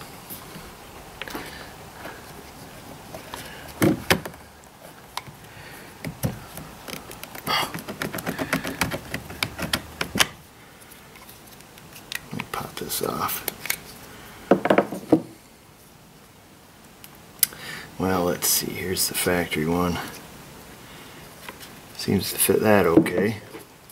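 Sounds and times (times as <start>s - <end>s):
hard plastic clicks and knocks: 6.0s - 10.4s.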